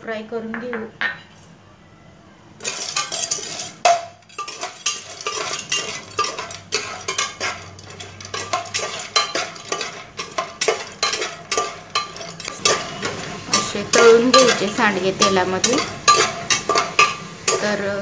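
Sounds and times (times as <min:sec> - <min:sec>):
metal spoon scraping a pot: 0:02.6 - 0:17.9.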